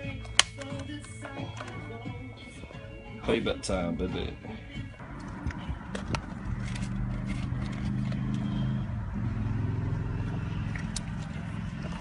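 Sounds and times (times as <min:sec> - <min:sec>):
car engine idling: 0:04.4 - 0:12.0.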